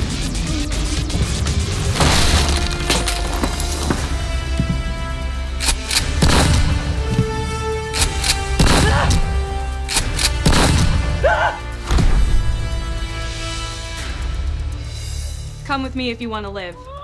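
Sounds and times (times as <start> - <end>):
background music with held notes: 0.0 - 17.0
gunshots: 5.6 - 7.0, 8.0 - 9.3, 9.9 - 11.2.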